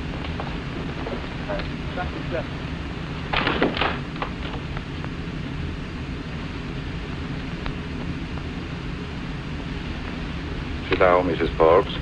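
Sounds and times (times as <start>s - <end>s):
film soundtrack hiss and rumble: 0.0s - 12.0s
noisy thump: 3.3s - 4.9s.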